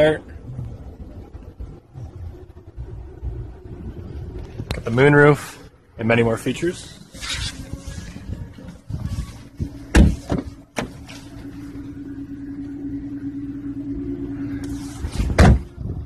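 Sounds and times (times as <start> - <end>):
steady low hum: 0.0 - 16.0
car door thump: 9.6 - 11.1, 15.2 - 15.8
car door slamming: 9.6 - 11.3, 15.1 - 15.8.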